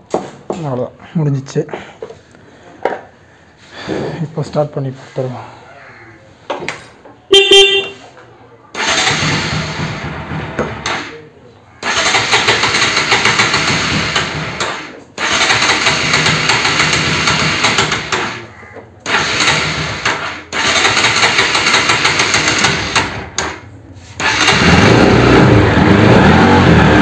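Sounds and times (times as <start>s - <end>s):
electric starter cranking engine: 8.7s - 11.1s, 11.8s - 27.0s.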